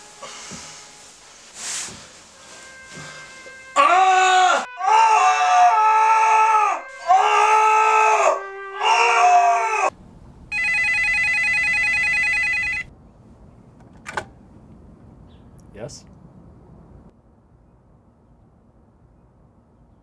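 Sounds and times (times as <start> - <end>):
man screaming: 3.8 - 9.9
telephone ringing: 10.5 - 12.9.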